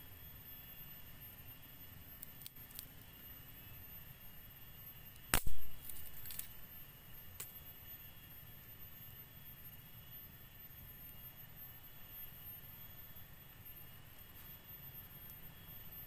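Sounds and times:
dry sticks clicking: 0:05.2 - 0:06.6
dry branch snapping: 0:05.3 - 0:06.6.

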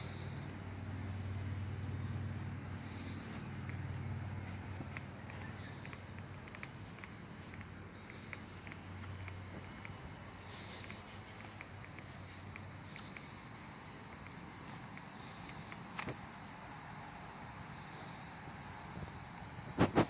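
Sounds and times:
insects droning: 0:00.0 - 0:20.0
faint small ticks: 0:02.8 - 0:16.7.

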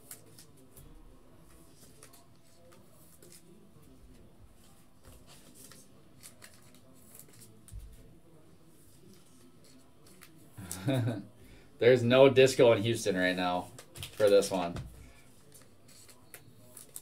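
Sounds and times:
trading cards rustling and clicking: 0:00.0 - 0:03.6, 0:05.0 - 0:08.0, 0:08.9 - 0:10.4, 0:13.6 - 0:17.0.

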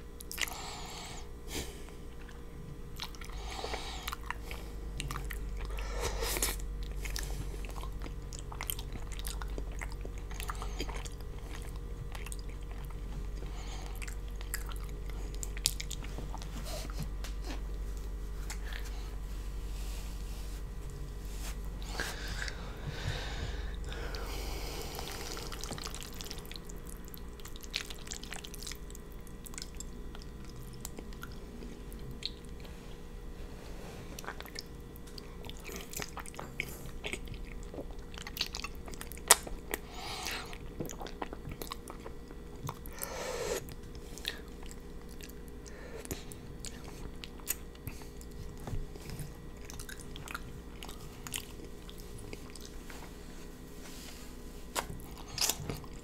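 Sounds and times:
chewing with wet mouth clicks: 0:00.2 - 0:00.6, 0:02.1 - 0:05.8, 0:06.4 - 0:18.9, 0:25.0 - 0:32.7, 0:34.2 - 0:53.1, 0:54.7 - 0:56.0.

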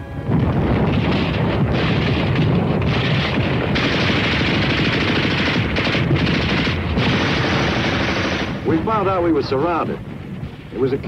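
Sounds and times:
machine-gun fire: 0:00.8 - 0:09.0
rifle shots: 0:00.9 - 0:09.2.

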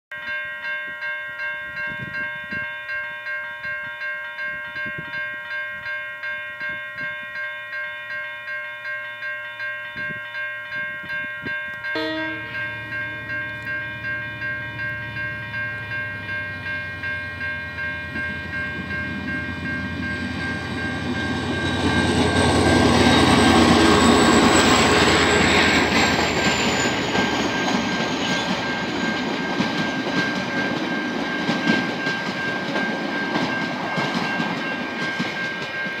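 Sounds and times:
level crossing bell ringing: 0:00.1 - 0:36.0
diesel locomotive engine: 0:10.8 - 0:36.0
train horn: 0:11.9 - 0:13.2
train wheel clatter: 0:17.8 - 0:36.0.

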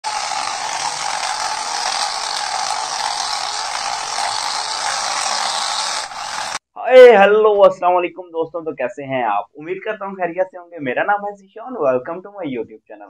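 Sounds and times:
toy car motor whirring: 0:00.0 - 0:06.6.

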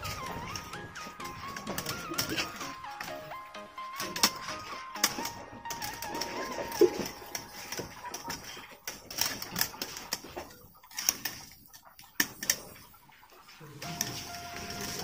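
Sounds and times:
oil crackling and popping: 0:04.0 - 0:12.8.

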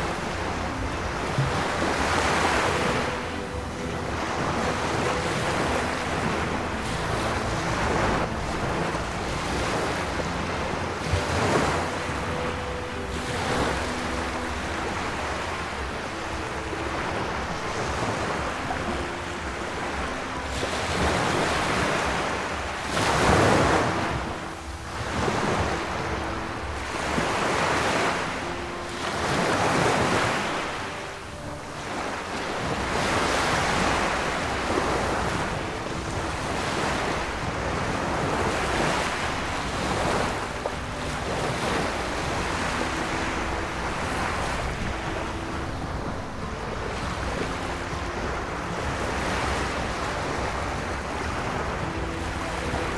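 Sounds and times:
small waves washing onto shore: 0:00.0 - 0:52.9
wind on microphone: 0:00.0 - 0:52.9.

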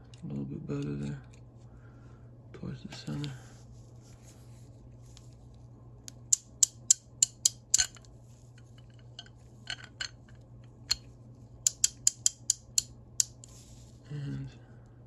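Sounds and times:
ratchet clicking: 0:11.7 - 0:13.4.

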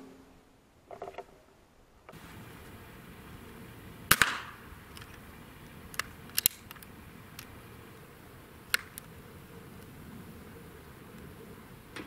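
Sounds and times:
air rifle clicks: 0:04.1 - 0:07.8, 0:08.6 - 0:09.2.

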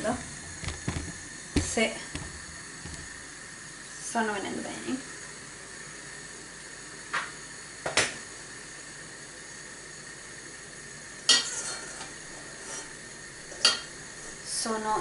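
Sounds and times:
steam hissing: 0:00.0 - 0:15.0.

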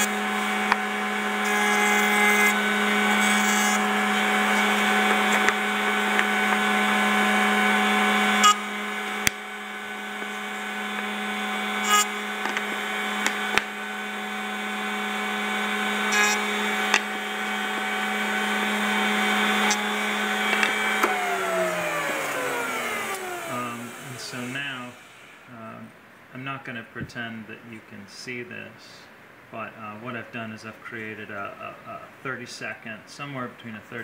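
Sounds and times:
router bit cutting wood: 0:00.0 - 0:25.5
router whining: 0:00.0 - 0:25.5.

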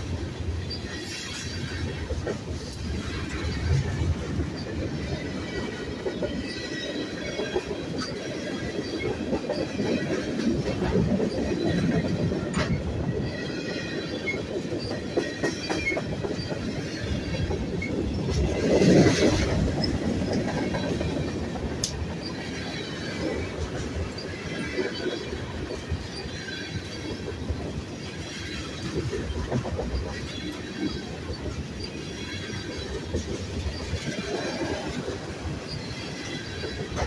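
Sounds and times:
train wheels rumbling on rail: 0:00.0 - 0:37.0.

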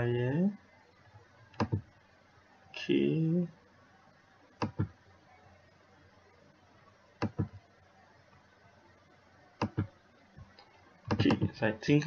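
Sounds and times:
computer mouse clicks: 0:01.5 - 0:01.8, 0:04.6 - 0:04.9, 0:07.2 - 0:07.6, 0:09.6 - 0:09.9.

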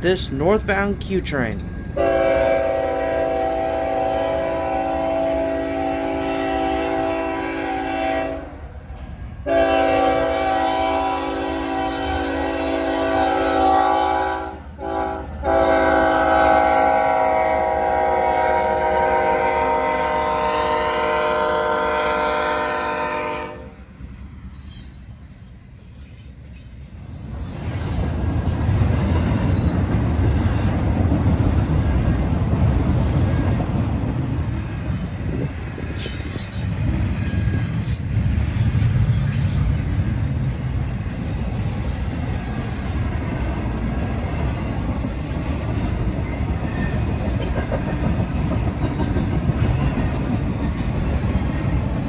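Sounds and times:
locomotive horn blast: 0:02.0 - 0:08.6, 0:09.5 - 0:23.8
wheels clattering on rail joints: 0:24.2 - 0:52.0.

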